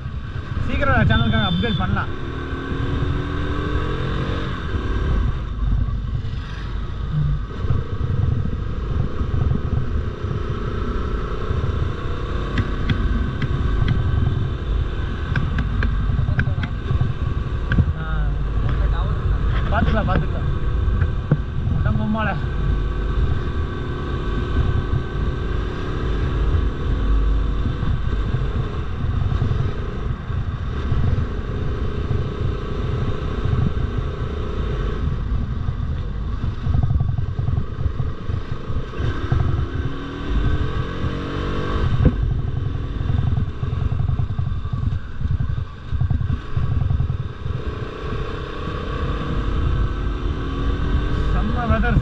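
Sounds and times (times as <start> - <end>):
motorcycle engine running: 0.0 - 52.0
wind rush on microphone: 0.0 - 52.0.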